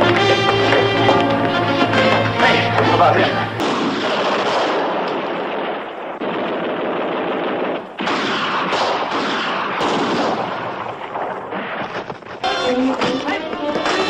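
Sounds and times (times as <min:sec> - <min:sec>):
machine gun fire: 0:03.6 - 0:13.2.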